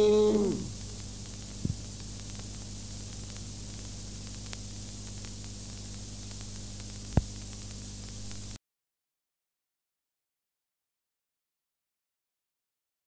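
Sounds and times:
electrical hum and hiss: 0:00.0 - 0:08.6
low thumps: 0:01.6 - 0:01.9.

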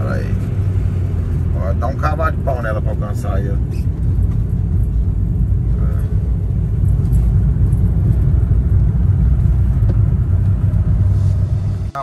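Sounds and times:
car engine rumble: 0:00.0 - 0:12.0
tyres on road: 0:00.0 - 0:12.0.

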